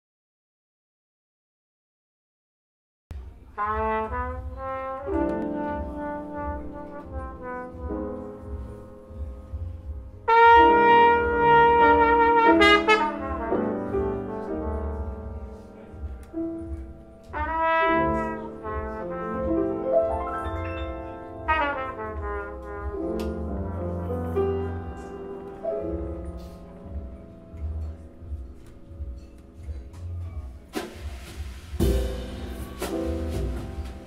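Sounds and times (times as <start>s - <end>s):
piano: 3.1s - 34.0s
trumpet playing melodic phrases: 3.6s - 8.8s, 10.2s - 16.1s, 17.2s - 25.6s.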